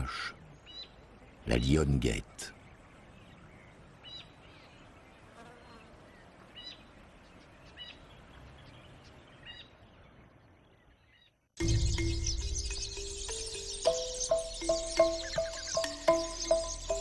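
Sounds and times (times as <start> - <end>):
high bird chirps: 10.8 - 17.0.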